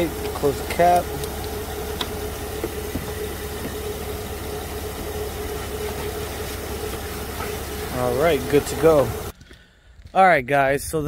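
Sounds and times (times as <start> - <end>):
car engine idling: 0.0 - 9.4.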